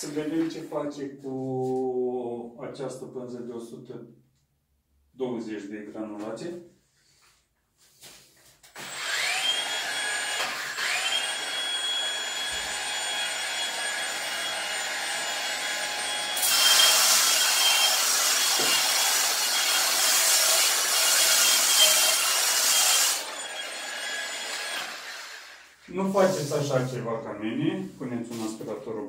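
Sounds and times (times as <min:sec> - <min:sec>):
sander motor whine: 0:08.8 - 0:19.1, 0:21.4 - 0:25.6.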